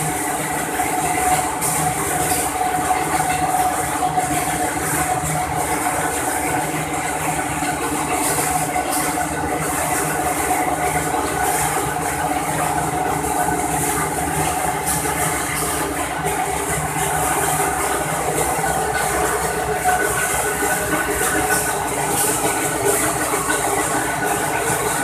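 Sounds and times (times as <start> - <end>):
laminating machine humming: 0.0 - 25.0.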